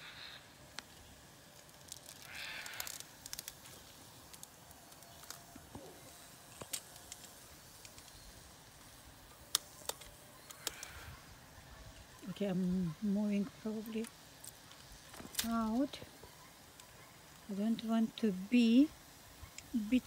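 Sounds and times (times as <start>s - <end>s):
hive tool clicks: 6.5s - 8.2s, 9.3s - 11.0s, 13.9s - 15.8s.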